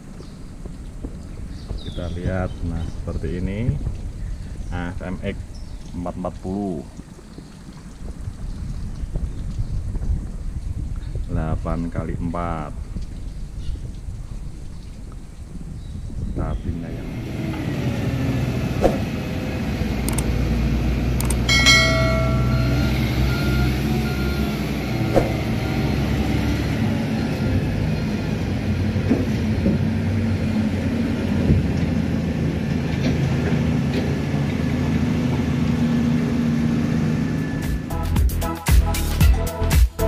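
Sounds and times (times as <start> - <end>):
diesel machinery running: 16.8 - 38.2
brief beep: 21.2 - 24.4.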